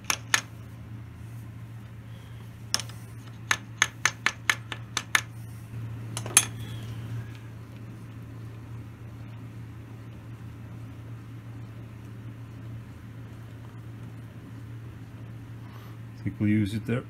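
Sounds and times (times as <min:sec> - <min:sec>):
steady low hum: 0:00.0 - 0:17.0
hammer tapping on metal: 0:02.7 - 0:05.3.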